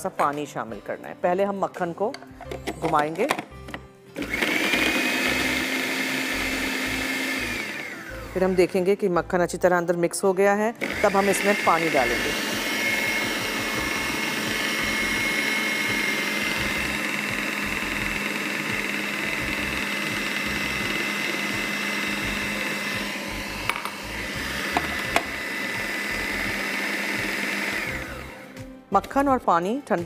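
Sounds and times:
food processor motor running: 4.2 - 8.7, 10.8 - 28.6.

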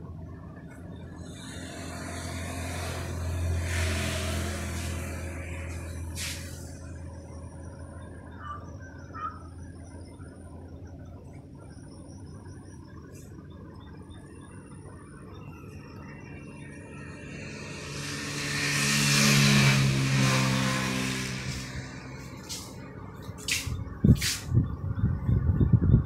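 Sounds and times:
steady low hum: 0.0 - 26.0
road vehicle passing: 0.9 - 8.1, 16.1 - 24.6.

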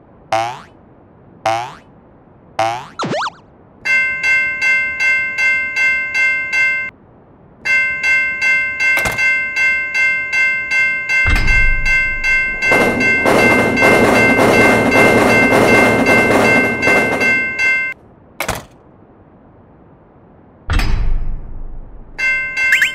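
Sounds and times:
railroad crossing bell ringing: 3.8 - 7.0, 7.6 - 18.0, 22.1 - 22.9
train rushing: 10.2 - 18.0
low thud: 11.3 - 13.4.

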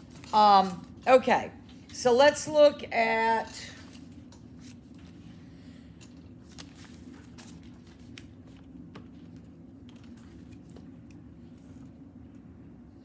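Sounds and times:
paper rustling: 6.1 - 10.9.

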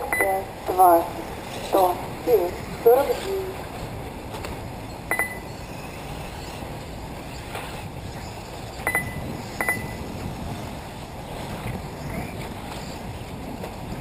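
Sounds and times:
outdoor background noise: 0.0 - 14.0
high electronic double beeps: 4.9 - 5.6, 8.8 - 10.0.

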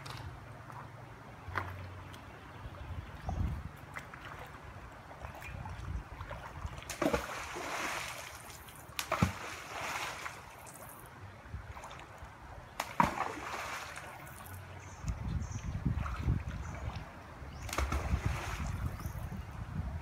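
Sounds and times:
river water splashing and sloshing: 0.0 - 20.0
sharp water splashes: 3.8 - 11.1, 11.7 - 14.8, 15.8 - 19.1.

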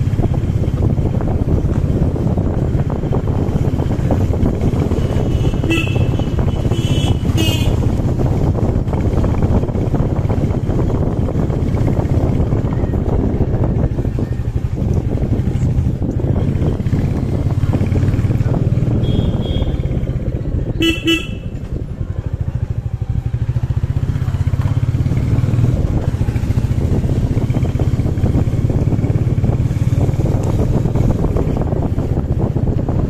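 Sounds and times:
motorcycle engine running: 0.0 - 33.0
horn toots: 5.1 - 8.0, 18.8 - 20.0, 20.8 - 21.7.

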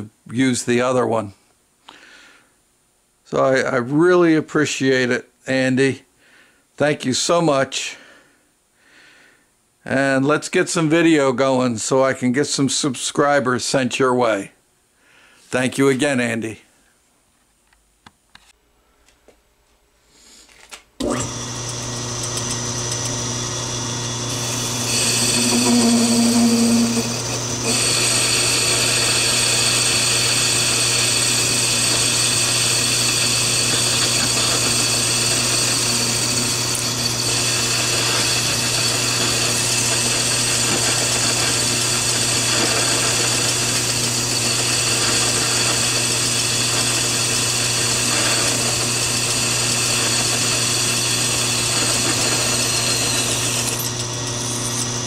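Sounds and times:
metal lathe cutting steel: 21.0 - 55.0.

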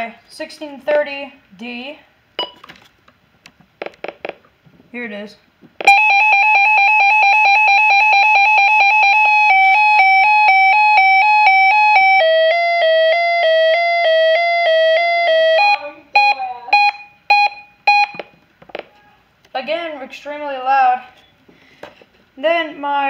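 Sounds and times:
electronic siren alert: 5.8 - 18.3
short beeps: 15.6 - 18.3.

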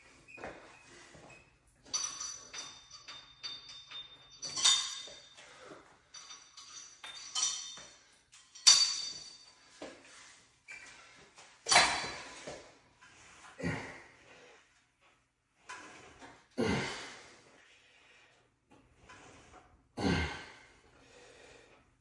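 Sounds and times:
metal clinks and clanks: 1.8 - 9.9, 11.6 - 12.6.

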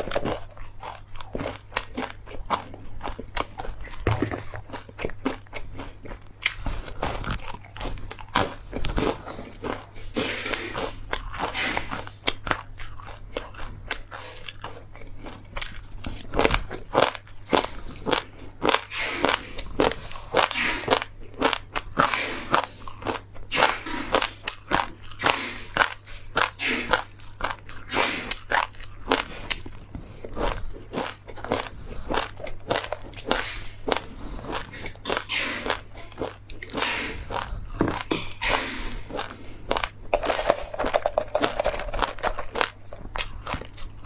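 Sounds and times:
chewing crisp seeds: 0.0 - 44.0.

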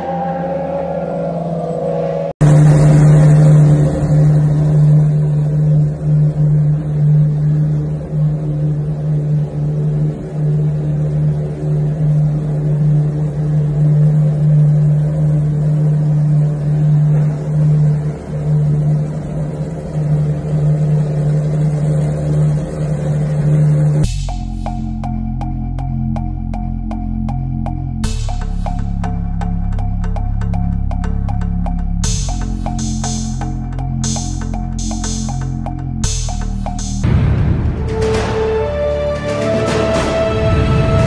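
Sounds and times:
car engine idling: 21.3 - 38.0.

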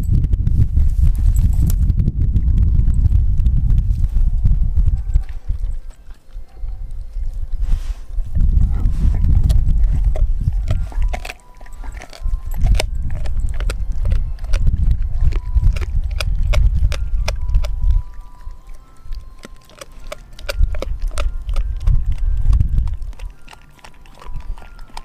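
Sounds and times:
low rumble: 0.0 - 5.9, 6.8 - 11.2
dog crunching on bone: 4.9 - 7.6, 8.3 - 25.0.

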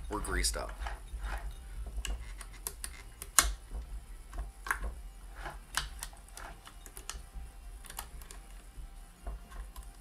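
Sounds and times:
sewing machine mechanism clicks and knocks: 0.2 - 7.2.

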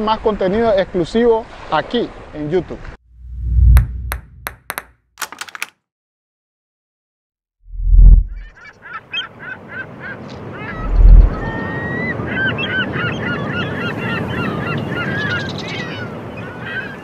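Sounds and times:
birds calling: 8.4 - 17.0
deep boom: 10.8 - 11.5.

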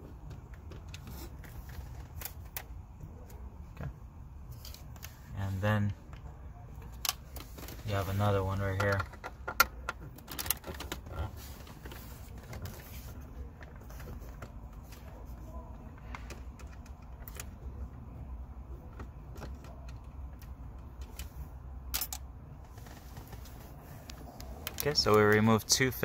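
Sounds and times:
screwdriver clicks and metal taps: 21.8 - 22.3.

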